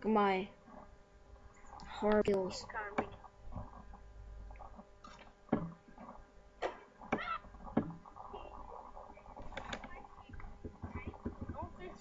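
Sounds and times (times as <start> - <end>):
faint hum: 0.0 - 12.0
basketball bouncing on concrete: 10.6 - 11.7.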